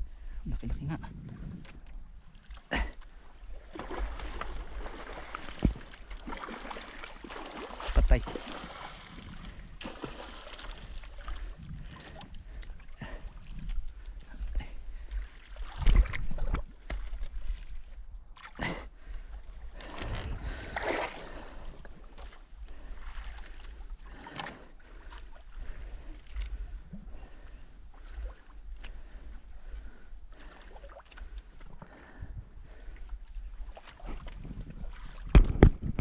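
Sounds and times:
wind rumble on microphone: 0:00.0 - 0:02.4, 0:07.9 - 0:09.8, 0:10.7 - 0:18.4, 0:19.0 - 0:20.8, 0:32.1 - 0:36.0
water sloshing against boat: 0:00.4 - 0:36.0.

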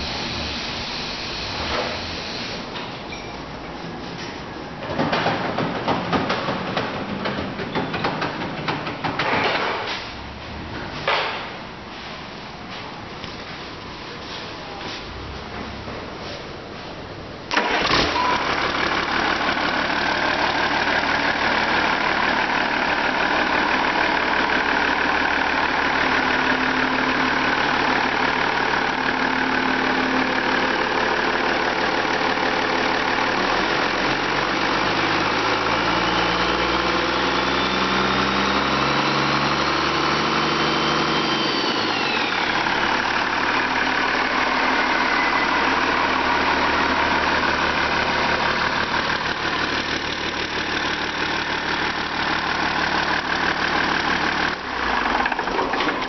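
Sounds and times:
diesel engine idling and revving: 0:00.0 - 0:11.6, 0:17.2 - 0:56.0
turbocharger whistle: 0:40.6 - 0:42.7.

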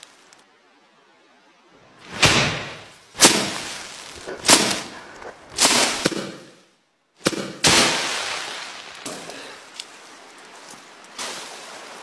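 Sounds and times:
straw swishing crashes: 0:02.0 - 0:06.6, 0:07.2 - 0:09.3
rustle of straw: 0:02.8 - 0:06.1, 0:07.6 - 0:12.0.

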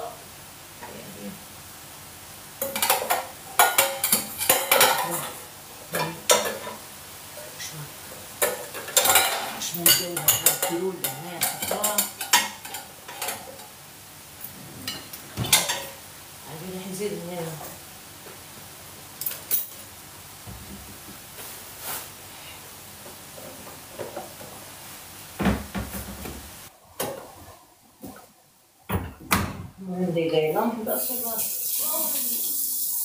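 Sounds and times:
dishes and pots clattering: 0:02.6 - 0:06.9, 0:08.4 - 0:13.7, 0:14.8 - 0:16.0.

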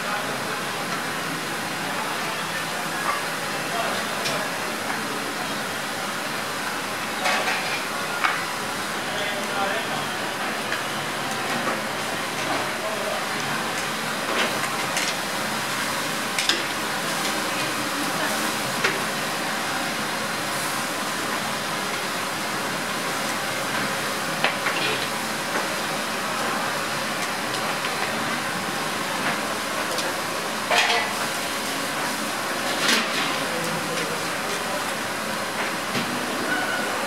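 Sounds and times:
ribs sizzling on a grill: 0:19.9 - 0:32.8.

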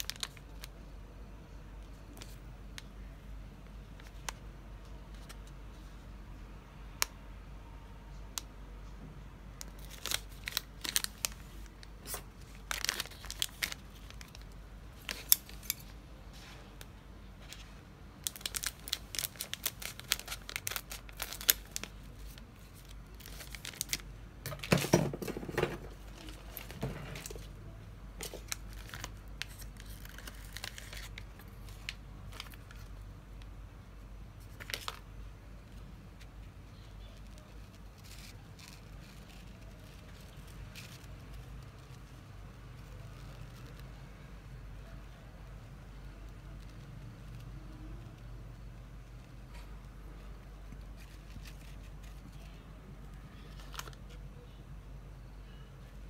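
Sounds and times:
snack bag crinkling: 0:09.6 - 0:15.9, 0:18.2 - 0:27.5, 0:28.2 - 0:32.9.

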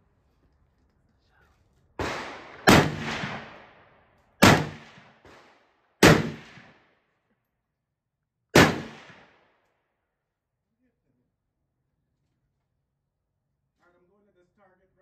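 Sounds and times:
rifle shots: 0:02.0 - 0:06.9, 0:08.6 - 0:09.5.

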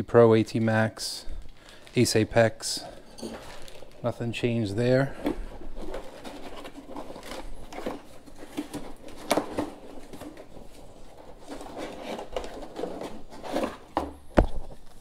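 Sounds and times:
cardboard rustling and scraping: 0:03.3 - 0:15.0.

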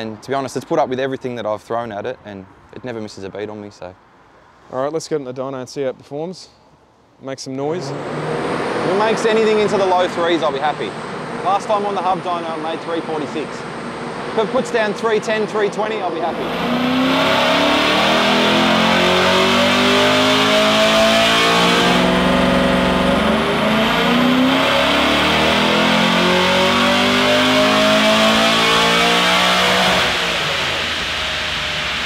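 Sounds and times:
car engine revving hard: 0:07.7 - 0:32.0.

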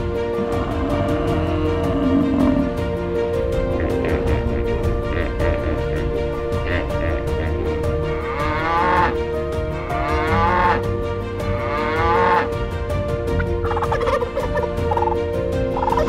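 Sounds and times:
cattle mooing: 0:00.3 - 0:03.0, 0:08.1 - 0:09.2, 0:09.8 - 0:10.8, 0:11.5 - 0:12.6
turkey gobbling: 0:13.6 - 0:15.2, 0:15.8 - 0:16.0.

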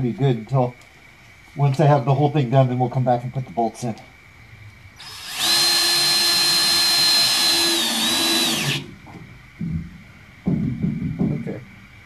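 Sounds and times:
cordless drill whining: 0:05.0 - 0:09.0.

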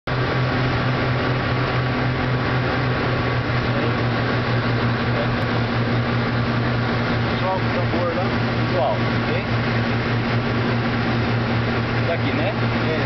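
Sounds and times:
propeller plane engines droning: 0:00.1 - 0:13.0.

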